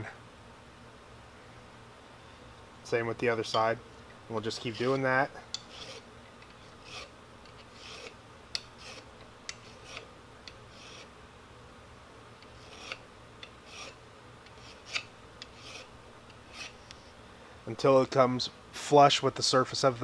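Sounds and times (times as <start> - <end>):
file rasping on steel: 4.5 - 11.1, 12.4 - 17.0.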